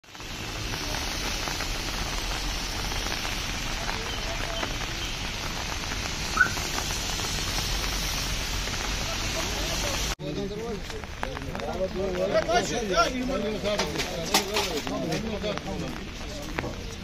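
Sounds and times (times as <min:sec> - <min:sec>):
steady rain hiss: 0:00.0 - 0:17.0.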